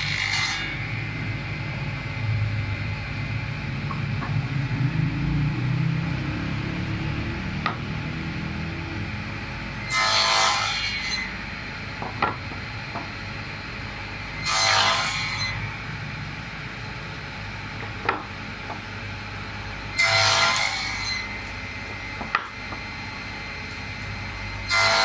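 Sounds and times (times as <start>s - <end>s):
saw blade cutting wood: 0.0s - 0.8s, 9.8s - 11.3s, 14.4s - 15.6s, 20.0s - 21.3s, 24.7s - 25.0s
table saw humming: 0.0s - 25.0s.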